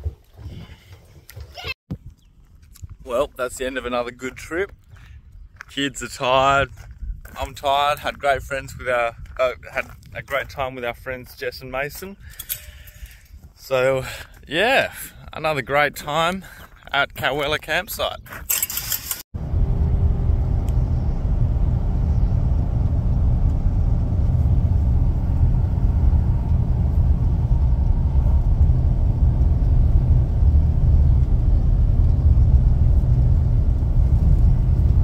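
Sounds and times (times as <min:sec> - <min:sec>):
car driving cabin rumble: 0:19.4 - 0:35.0.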